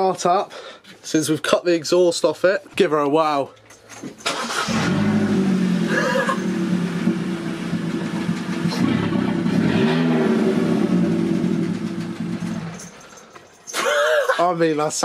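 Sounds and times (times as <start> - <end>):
car engine starting and idling: 4.2 - 13.2.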